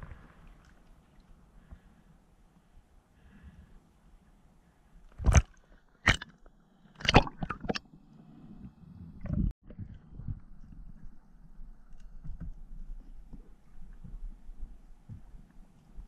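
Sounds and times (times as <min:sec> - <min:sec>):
underwater knocks and clicks: 0:11.8 - 0:15.5.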